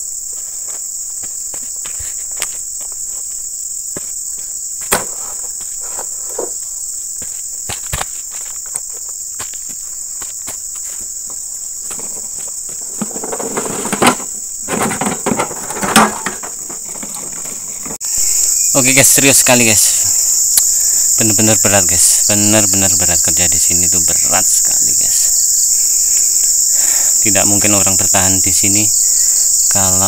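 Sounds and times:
shrill insect chorus: 0.0 - 30.0
thumps: 4.8 - 6.6, 11.8 - 18.0.

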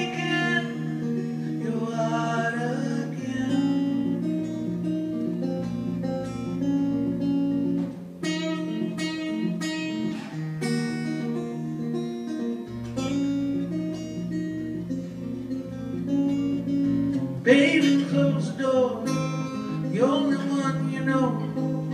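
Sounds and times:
acoustic guitar playing: 0.0 - 21.9.

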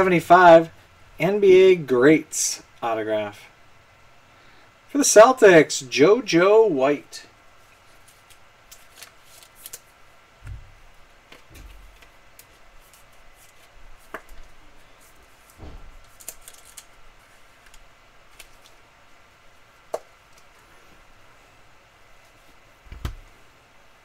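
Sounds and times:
soft low thumps: 10.4 - 10.9
cards clicking and tapping: 11.3 - 14.6, 19.9 - 20.5.

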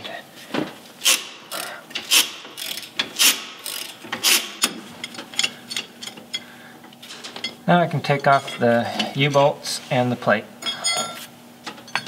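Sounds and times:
socket ratchet clicking: 1.0 - 4.8.

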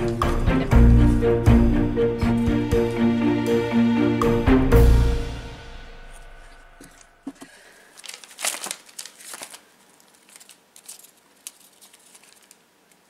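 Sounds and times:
paper rustling and crinkling: 6.8 - 13.0.

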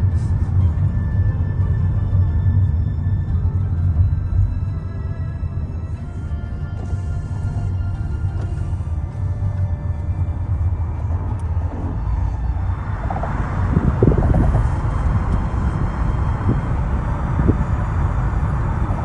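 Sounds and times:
low rumble of traffic: 0.0 - 19.0
brief low bumps: 11.0 - 16.7.

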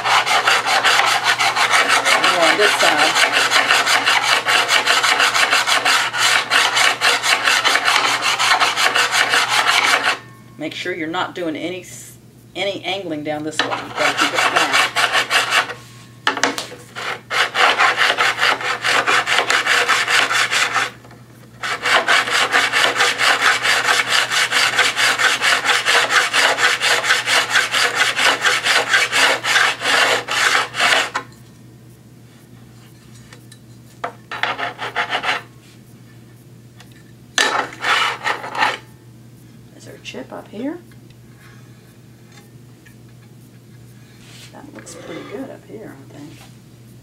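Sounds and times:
hand hone rubbing on steel blade: 0.0 - 10.2, 13.6 - 15.9, 21.6 - 31.2, 37.4 - 38.9.

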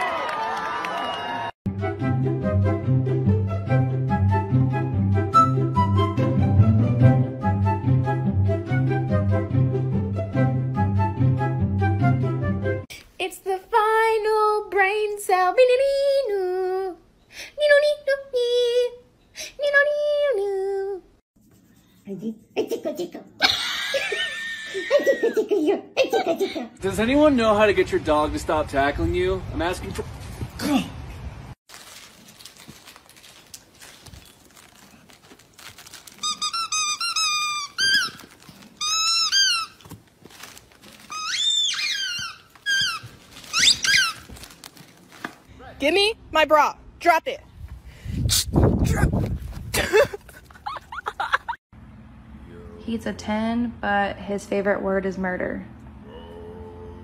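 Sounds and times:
squeaky dog toy squeaking: 36.2 - 40.0, 41.0 - 44.4.

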